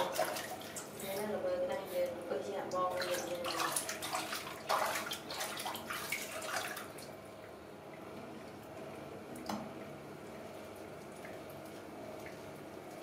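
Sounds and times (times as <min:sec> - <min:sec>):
water splashing in sink: 0:00.0 - 0:08.6.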